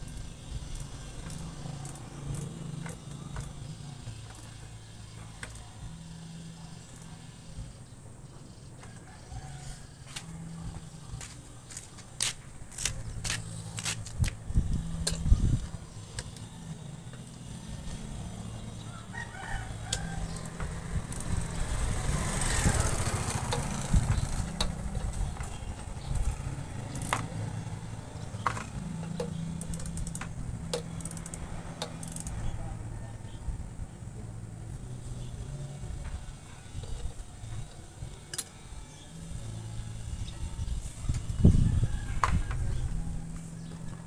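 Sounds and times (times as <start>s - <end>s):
steady low hum: 0.0s - 44.0s
hand tools clicking on metal: 19.9s - 27.5s, 28.4s - 32.4s.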